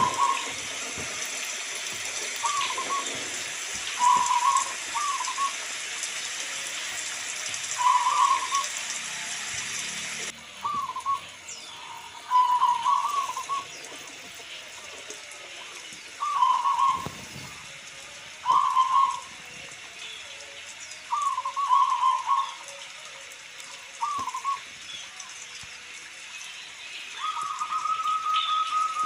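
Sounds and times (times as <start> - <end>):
dove cooing: 0.0 - 0.8, 2.4 - 5.6, 7.8 - 8.7, 10.6 - 14.0, 16.2 - 17.6, 18.4 - 19.3, 21.1 - 22.8, 24.0 - 24.6.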